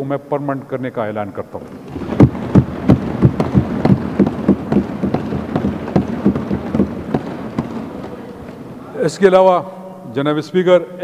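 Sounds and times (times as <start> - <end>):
people thumping desks: 1.6 - 9.1.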